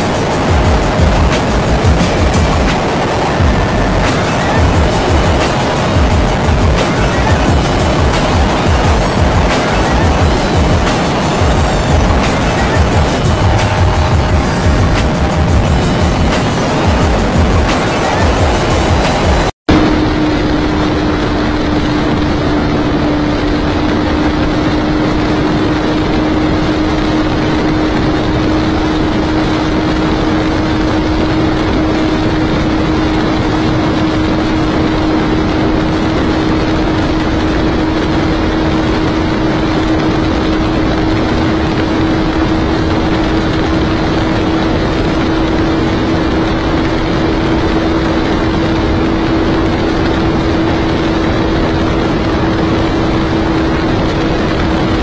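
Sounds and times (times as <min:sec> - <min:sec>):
motorcycle engine at high revs: 0:00.0 - 0:55.0
wind rush: 0:00.0 - 0:55.0.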